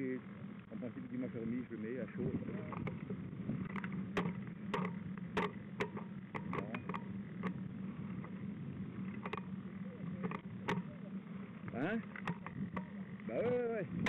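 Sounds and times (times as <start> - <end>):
bike tyres rumbling over snow: 0.2 - 14.0
sharp clicks and rattles: 2.5 - 8.4, 9.0 - 14.0.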